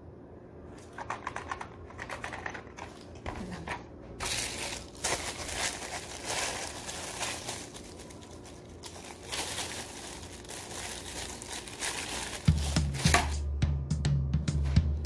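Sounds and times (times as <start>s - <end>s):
mailing bag crinkling: 4.2s - 13.4s
background music: 12.4s - 15.0s.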